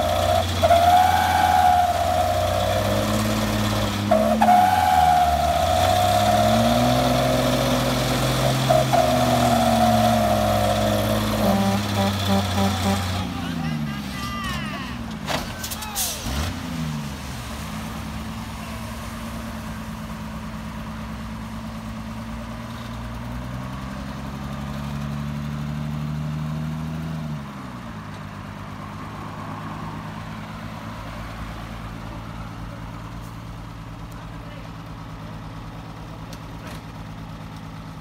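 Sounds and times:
diesel truck engine revving: 0.0 - 14.2, 14.9 - 27.8.

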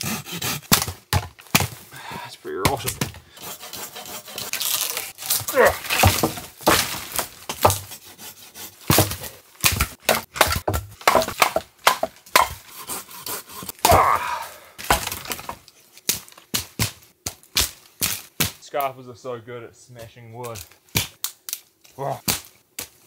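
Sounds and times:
dry branches snapping: 4.5 - 7.8, 20.4 - 23.0
boot stomping on branches: 5.2 - 7.9.

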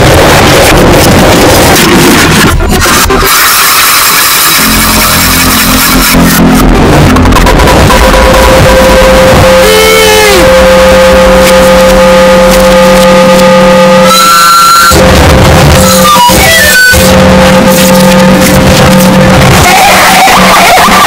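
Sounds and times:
distorted harsh noise: 0.0 - 21.0
low drones: 0.0 - 21.0
short bleeping tones: 7.1 - 21.0.

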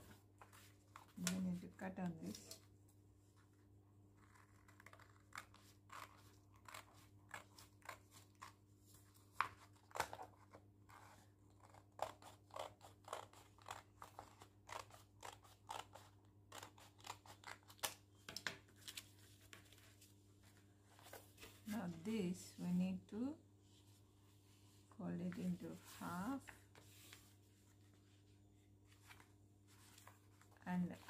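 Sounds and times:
scissors snipping paper: 4.2 - 8.6, 9.5 - 18.0.

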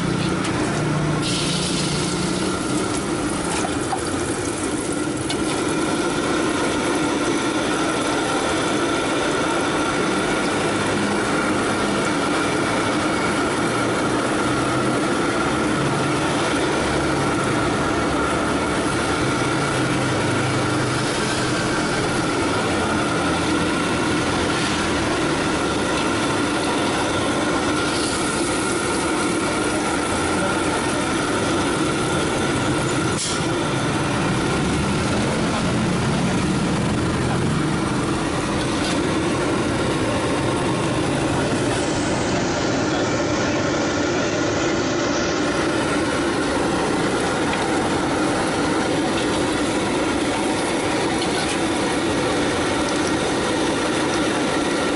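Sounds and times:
gas burner roaring: 0.0 - 54.9
egg frying in oil: 1.2 - 8.1.

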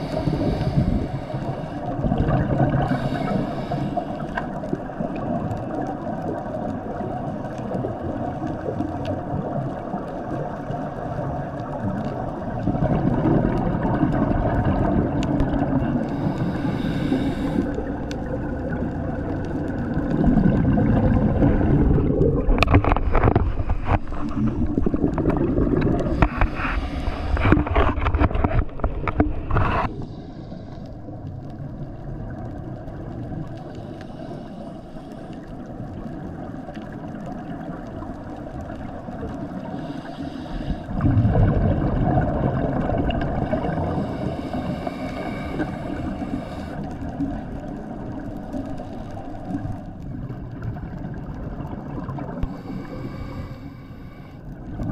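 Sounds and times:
underwater hiss: 0.0 - 7.5, 13.5 - 18.8, 24.0 - 27.7, 29.4 - 31.8, 33.1 - 36.1, 38.6 - 50.7, 52.0 - 54.7
scuba exhaust bubbles: 0.0 - 54.9.

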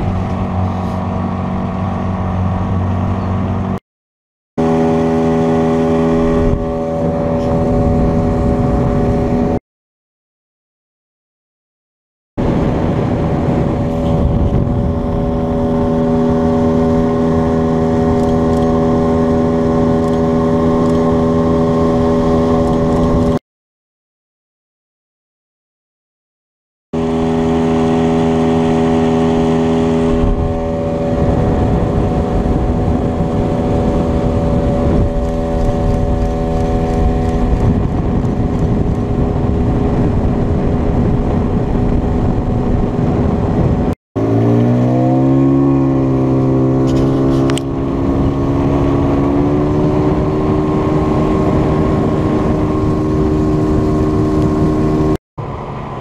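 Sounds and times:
motorboat engine running: 0.0 - 3.8, 4.6 - 9.6, 12.4 - 23.4, 27.0 - 56.0
rushing water: 0.0 - 3.8, 12.4 - 23.4, 27.0 - 56.0
wind noise: 4.6 - 9.6, 12.4 - 23.4, 27.0 - 56.0.

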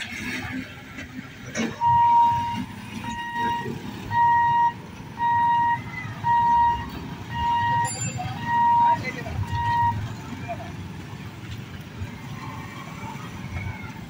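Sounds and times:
level crossing warning beeps: 1.6 - 10.3.

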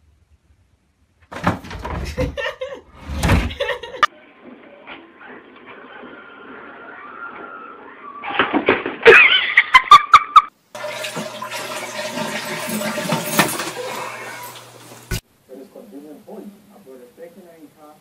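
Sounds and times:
toilet flushing: 10.7 - 15.2.

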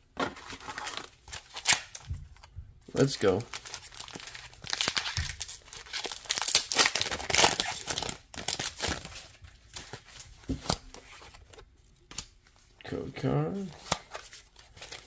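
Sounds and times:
cards rustling: 0.2 - 12.6, 13.6 - 15.0
foil wrapper crinkling: 3.4 - 9.3.

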